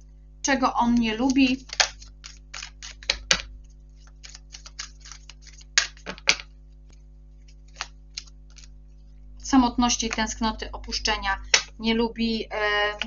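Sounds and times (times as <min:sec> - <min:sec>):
faint electrical hum: 0:00.0 - 0:13.0
cards being shuffled: 0:00.9 - 0:09.2.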